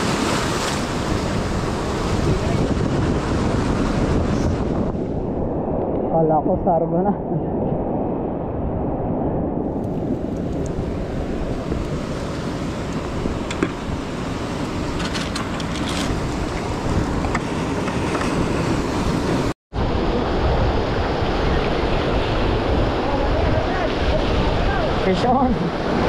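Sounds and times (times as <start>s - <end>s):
surf breaking over rocks: 0.0s - 4.9s
wind buffeting microphone: 0.0s - 26.0s.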